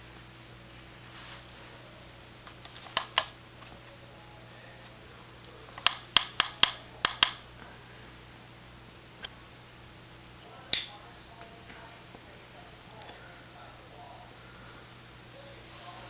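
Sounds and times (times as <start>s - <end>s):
push buttons clicking: 2.5s - 3.3s, 5.8s - 7.4s.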